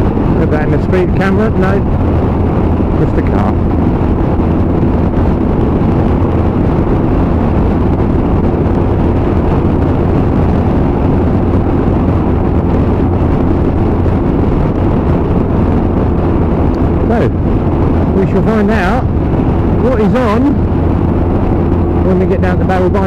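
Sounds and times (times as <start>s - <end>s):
motorcycle engine cruising: 0.0s - 23.0s
wind rush in helmet: 0.0s - 23.0s.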